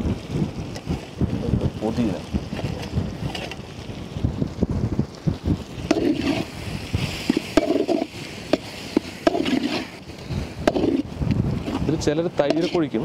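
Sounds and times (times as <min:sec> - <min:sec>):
spoon scraping a metal pot: 0:05.9 - 0:06.5, 0:07.3 - 0:10.0, 0:10.6 - 0:11.8, 0:12.4 - 0:13.0.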